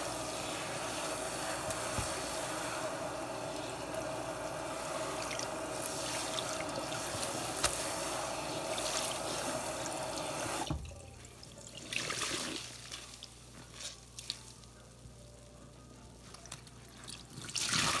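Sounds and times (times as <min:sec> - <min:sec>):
sink sprayer water hissing: 0:00.0 - 0:10.8.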